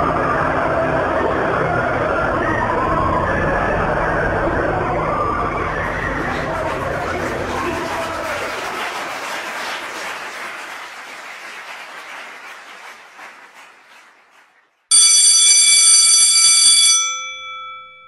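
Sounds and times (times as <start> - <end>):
rush of noise: 0.0 - 9.2
school bell ringing: 14.9 - 18.0.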